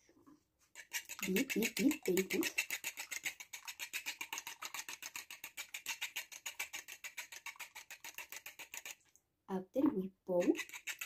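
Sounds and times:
whisk clicking against ceramic bowl: 0.8 - 9.0, 10.4 - 11.0.

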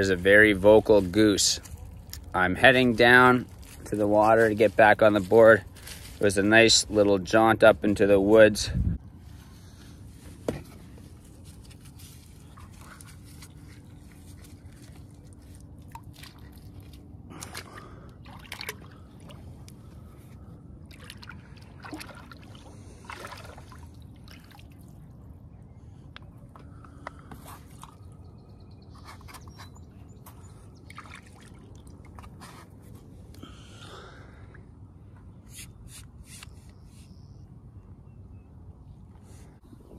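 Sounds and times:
low steady rumble: 0.0 - 29.0
paddle board being handled: 10.1 - 15.6.

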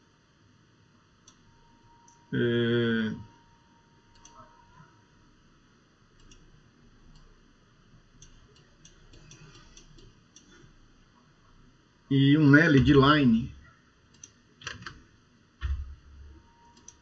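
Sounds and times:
computer mouse clicks: 4.1 - 4.5, 6.2 - 6.5, 8.2 - 10.7, 14.1 - 15.0, 16.7 - 17.0.

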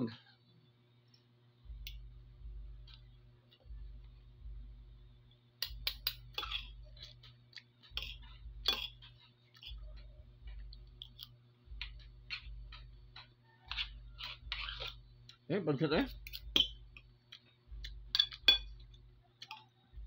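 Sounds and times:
cutlery clinking on a plate: 5.6 - 7.2, 7.9 - 9.8, 16.2 - 16.8, 18.1 - 18.8.

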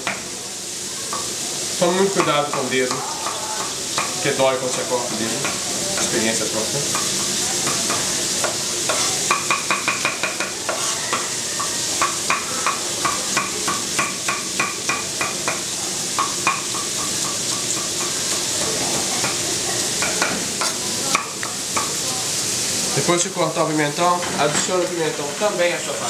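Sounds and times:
meat sizzling in a pan: 0.0 - 26.0
knife tapping on wooden board: 6.9 - 15.6, 16.2 - 18.4.

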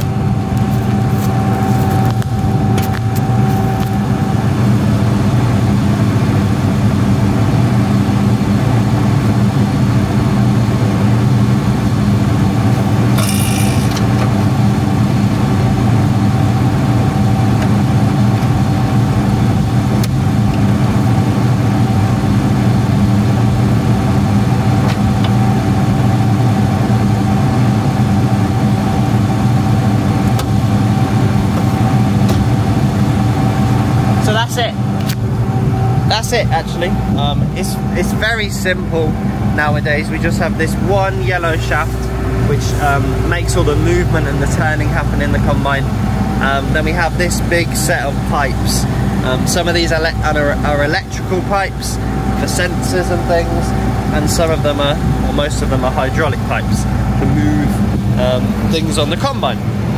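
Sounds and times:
diesel engine idling: 29.4 - 59.9.

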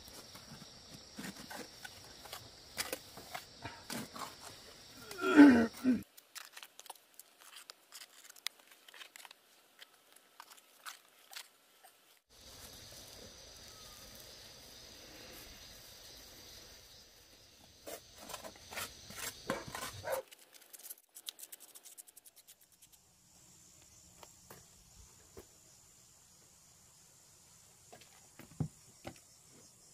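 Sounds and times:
trowel scraping mortar on stone: 17.8 - 22.6.

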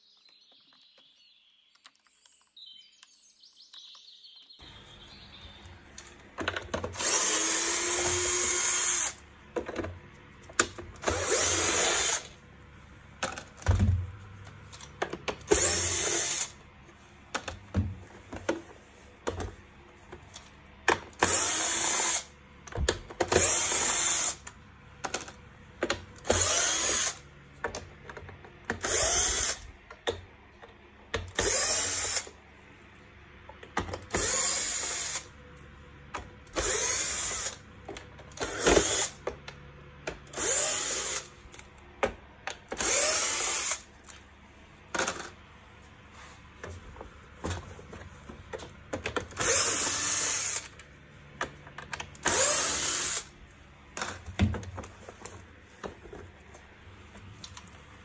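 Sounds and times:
plastic parts clicking and knocking: 0.0 - 4.7, 5.6 - 8.3, 9.0 - 11.2, 13.2 - 16.4, 17.3 - 21.5, 22.6 - 29.1, 29.8 - 31.6, 33.4 - 34.4, 44.9 - 45.5, 46.6 - 49.6, 50.6 - 52.4, 53.9 - 57.8
electric screwdriver whirring: 6.9 - 9.2, 10.6 - 12.4, 15.5 - 16.6, 21.2 - 22.3, 23.3 - 24.5, 26.2 - 27.2, 28.7 - 29.7, 31.3 - 32.4, 34.1 - 35.3, 36.6 - 37.6, 38.3 - 39.2, 40.2 - 41.3, 42.7 - 43.9, 49.3 - 50.8, 52.1 - 53.3.

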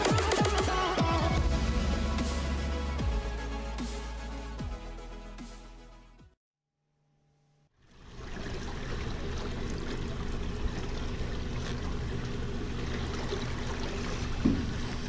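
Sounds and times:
outboard motor idling: 8.0 - 15.0
water splashing against hull: 8.0 - 15.0.

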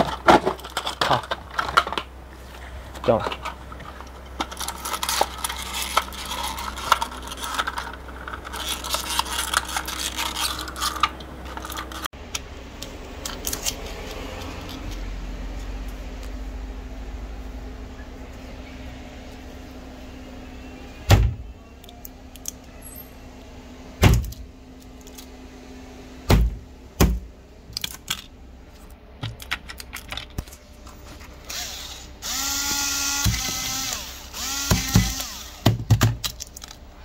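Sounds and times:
cordless screwdriver whirring: 31.5 - 35.7.

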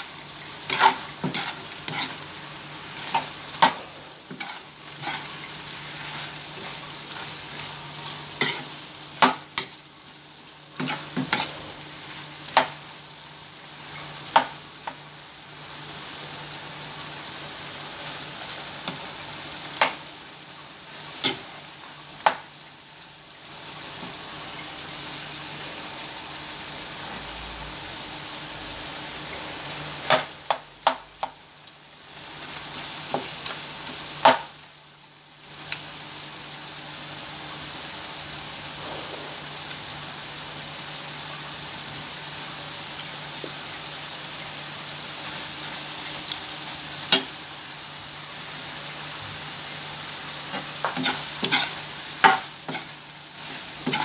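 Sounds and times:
meat sizzling in a frying pan: 0.0 - 54.0.

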